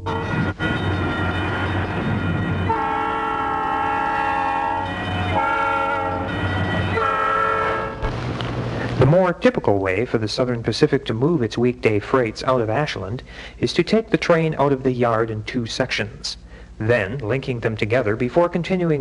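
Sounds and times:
locomotive horn blasts: 0.0 - 8.0
diesel engines rumbling: 0.0 - 19.0.

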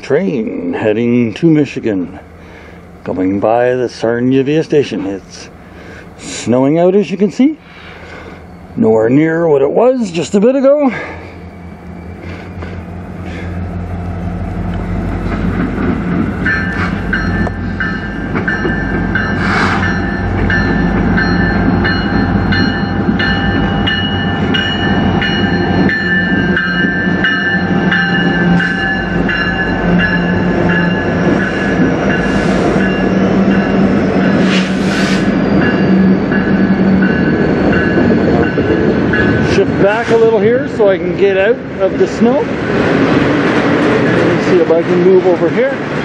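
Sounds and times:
locomotive engine rumble: 0.0 - 46.0
high ringing tones: 7.8 - 15.3, 16.4 - 42.4.

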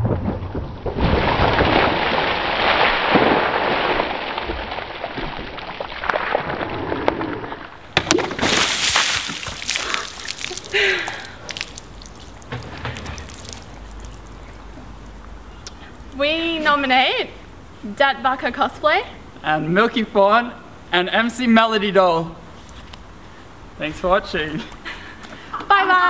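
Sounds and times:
water splashing onto paving: 7.9 - 16.3
water dripping: 8.0 - 16.4.

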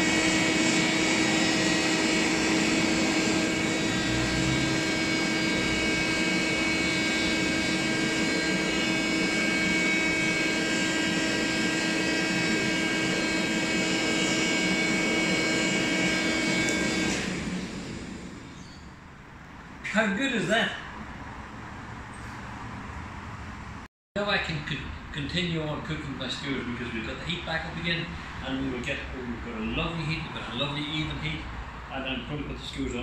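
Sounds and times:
electric blower whining: 0.0 - 18.7.

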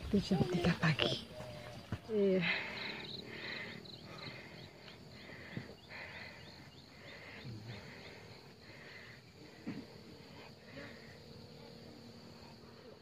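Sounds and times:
insects chirping: 0.0 - 13.0.

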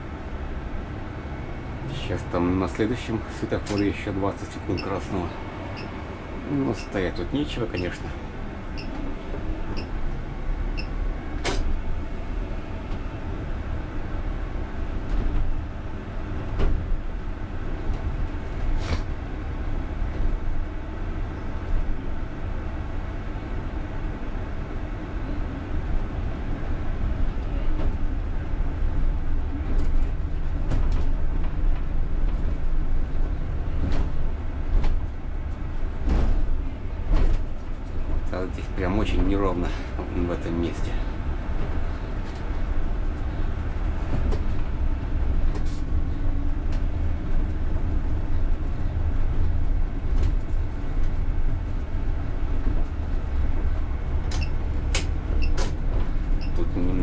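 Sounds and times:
bus tyres and running gear rumble: 0.0 - 57.0
bus body knocks and rattles: 11.4 - 12.0, 14.8 - 20.7, 27.6 - 40.0, 40.8 - 56.8.

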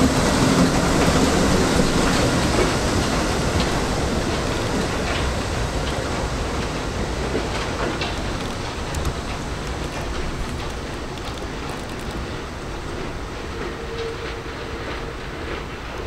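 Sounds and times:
subway train wheels on rails: 0.0 - 16.0.

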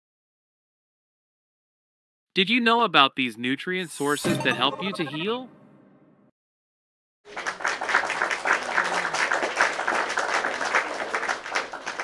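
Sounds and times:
crowd applauding: 7.3 - 12.0.

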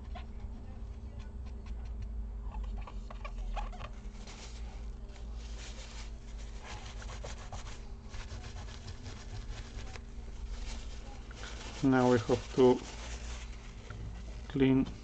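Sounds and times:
tissue wiping circuit board: 4.2 - 14.7.

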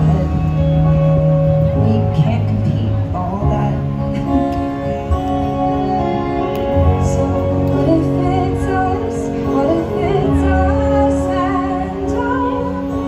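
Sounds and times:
instrumental accompaniment: 0.0 - 13.0
woman singing: 1.7 - 4.3, 5.5 - 13.0.

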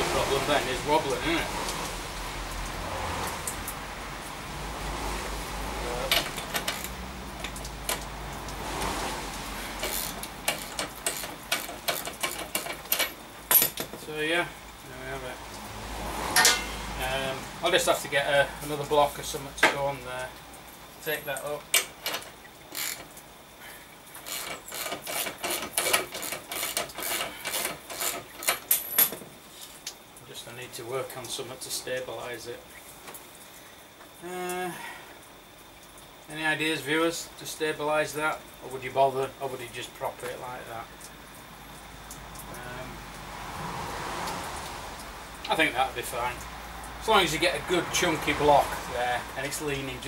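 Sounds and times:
ratchet wrench clicking: 9.8 - 13.8, 21.8 - 23.2, 24.2 - 29.1.

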